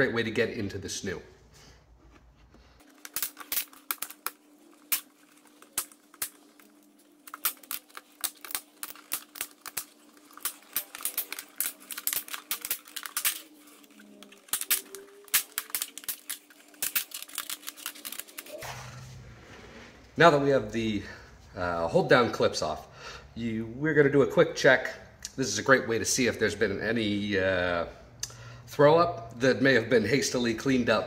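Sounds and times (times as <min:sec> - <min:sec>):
plastic clips clicking and snapping: 0:02.8 - 0:18.6.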